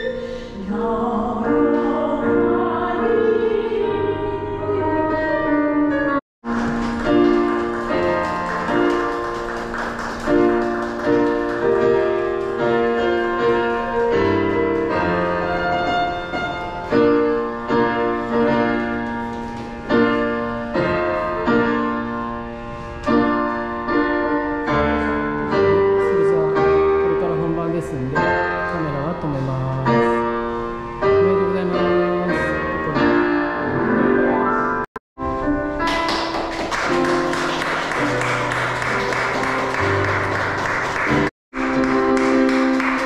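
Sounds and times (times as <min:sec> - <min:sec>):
slow piano chords: 0:00.0 - 0:43.0.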